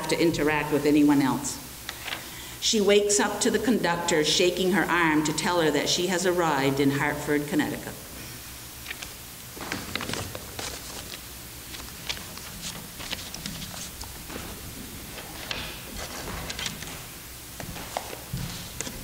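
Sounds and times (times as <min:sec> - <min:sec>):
paper rustling: 0:08.8 - 0:19.0.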